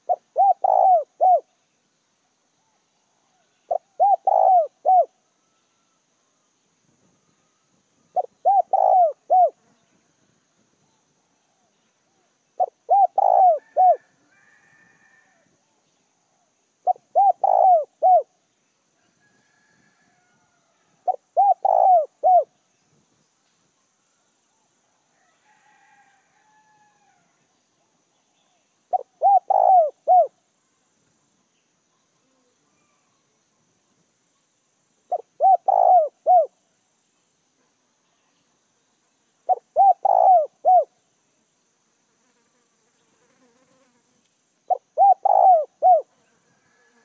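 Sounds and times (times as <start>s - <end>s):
dove cooing: 0.0s - 1.5s, 3.7s - 5.2s, 8.1s - 9.6s, 12.6s - 14.1s, 16.8s - 18.3s, 21.0s - 22.5s, 28.9s - 30.4s, 35.1s - 36.6s, 39.5s - 40.9s, 44.7s - 46.9s
faint high bird calls: 0.0s - 1.6s, 2.6s - 10.1s, 10.8s - 18.4s, 19.0s - 22.8s, 23.8s - 30.9s, 31.5s - 33.6s, 35.1s - 36.6s, 39.4s - 41.0s, 44.6s - 47.0s.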